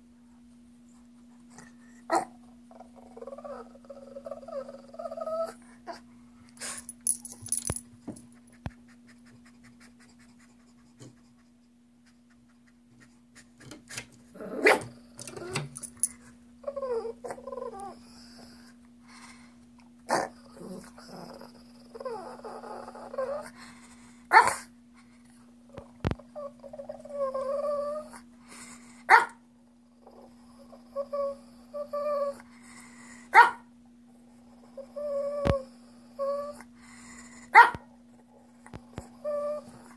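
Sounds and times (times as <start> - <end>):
dog growly vocalisations: 2.1 - 6.0, 14.3 - 15.6, 16.6 - 18.7, 20.1 - 23.6, 25.7 - 28.3, 29.9 - 32.4.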